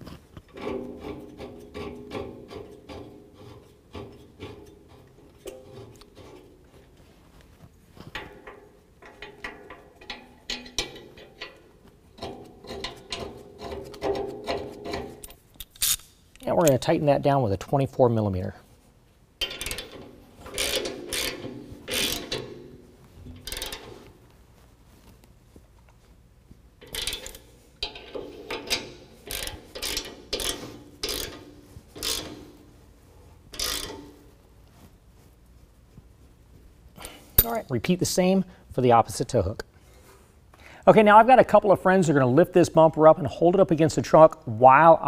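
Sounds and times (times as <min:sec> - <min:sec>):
light metal clicks and scraping: 0:00.0 - 0:17.0, 0:19.4 - 0:26.2, 0:26.8 - 0:32.8, 0:33.4 - 0:35.0, 0:36.9 - 0:37.9
hand ratchet clicking: 0:19.4 - 0:24.1, 0:26.8 - 0:32.6, 0:33.5 - 0:34.2.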